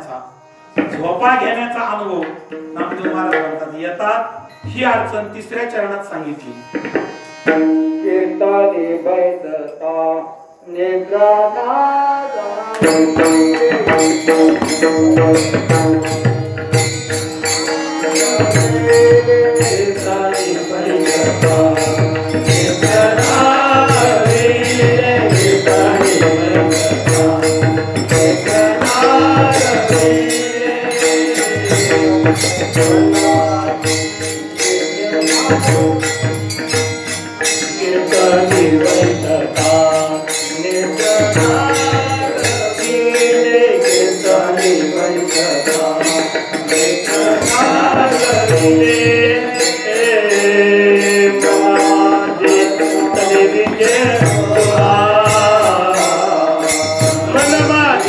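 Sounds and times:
drum beat: 0:12.8 - 0:17.4
small hand cymbals: 0:12.8 - 0:58.0
group singing devotional song: 0:18.0 - 0:33.8, 0:37.8 - 0:58.0.

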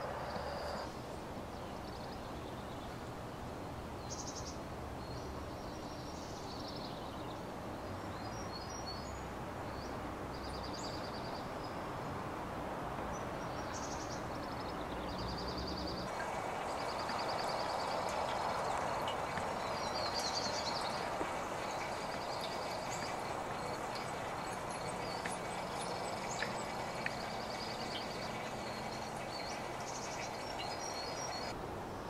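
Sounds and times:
songbirds chirping trills: 0:00.0 - 0:03.0, 0:13.1 - 0:31.6
outdoor ambience rush: 0:00.0 - 0:32.0.

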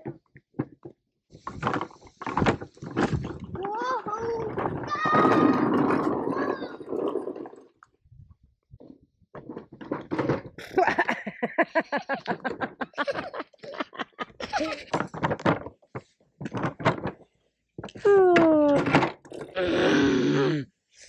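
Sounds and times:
child exclaiming loudly: 0:03.7 - 0:06.9
child laughing and giggling: 0:10.8 - 0:15.0.

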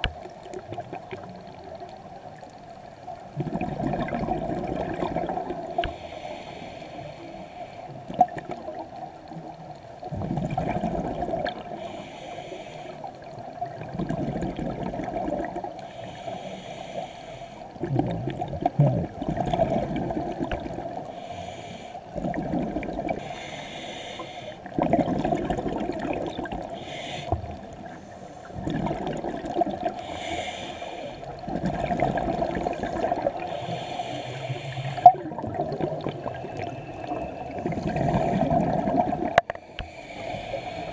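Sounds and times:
bubbling exhale underwater: 0:03.3 - 0:06.0, 0:10.1 - 0:11.8, 0:13.6 - 0:15.7, 0:17.8 - 0:21.1, 0:22.1 - 0:23.4, 0:24.6 - 0:26.9, 0:28.6 - 0:30.2, 0:31.4 - 0:34.0, 0:34.8 - 0:39.5
regulator hissing inhale: 0:05.7 - 0:08.0, 0:11.7 - 0:13.3, 0:15.8 - 0:17.8, 0:21.0 - 0:22.1, 0:23.2 - 0:24.8, 0:26.7 - 0:28.6, 0:29.9 - 0:31.4, 0:32.7 - 0:35.3, 0:39.4 - 0:40.9.

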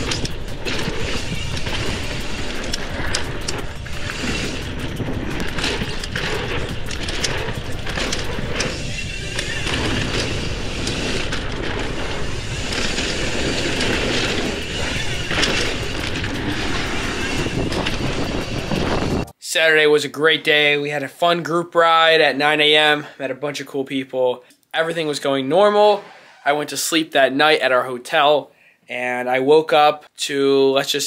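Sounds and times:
bike clicks and rattles: 0:00.0 - 0:19.3
tyre and wind noise: 0:00.0 - 0:19.3.

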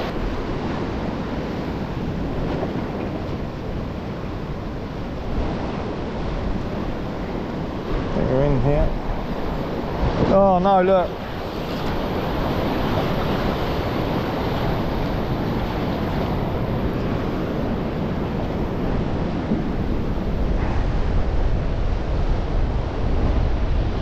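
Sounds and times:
sea swell washing in: 0:00.0 - 0:24.0
wind rumble on microphone: 0:00.0 - 0:24.0.

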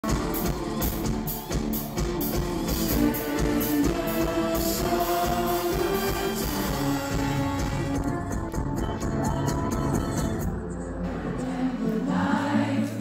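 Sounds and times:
pop-rock band playing: 0:00.0 - 0:11.4
person singing into a microphone: 0:02.9 - 0:10.3.

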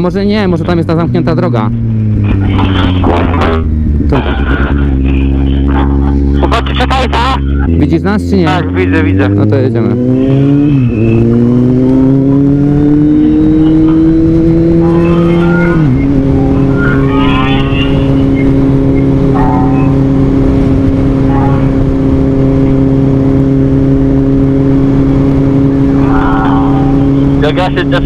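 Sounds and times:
motorcycle engine pulling away: 0:07.7 - 0:28.0.

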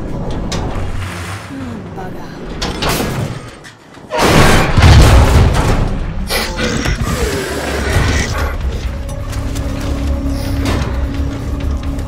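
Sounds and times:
dark music score: 0:00.0 - 0:12.0
heavy boom: 0:04.2 - 0:06.0.

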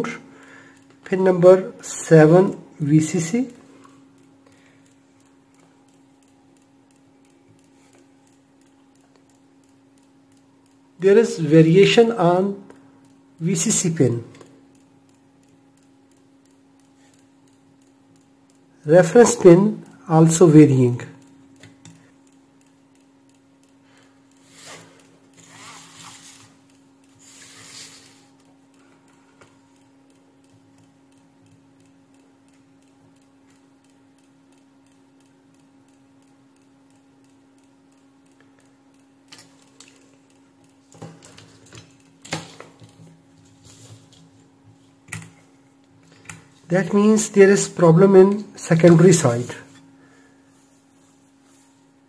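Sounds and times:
power supply ticking: 0:00.0 - 0:52.0
steady low hum: 0:00.0 - 0:52.0
test probes rustling and knocking: 0:39.3 - 0:46.7.

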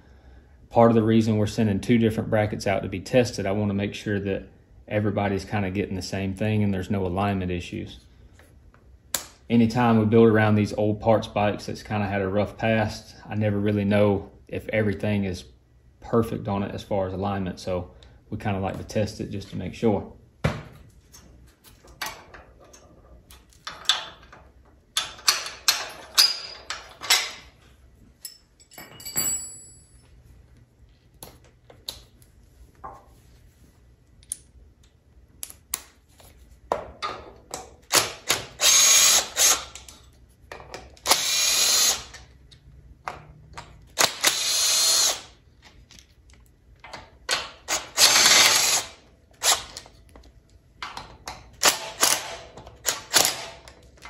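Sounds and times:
tools clicking and clinking: 0:21.9 - 0:27.5, 0:28.2 - 0:30.1
impact wrench hammering: 0:37.5 - 0:39.8, 0:50.8 - 0:53.8.

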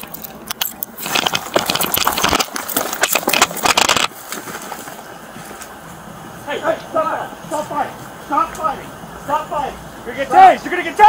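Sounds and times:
sharp clicks: 0:00.0 - 0:04.1
clothing and gear rustling: 0:00.0 - 0:06.2.

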